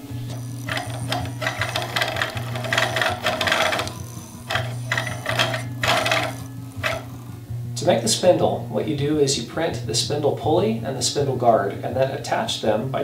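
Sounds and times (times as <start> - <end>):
spinning wheel whirring and rattling: 0.0 - 7.3.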